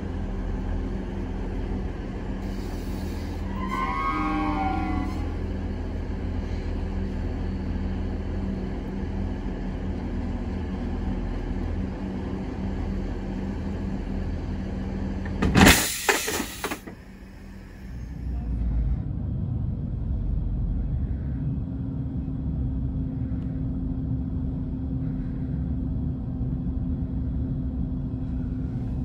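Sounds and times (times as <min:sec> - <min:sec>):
diesel train idling hum: 0:00.0 - 0:29.0
train running rumble: 0:00.0 - 0:29.0
loud air hiss: 0:15.7 - 0:16.8.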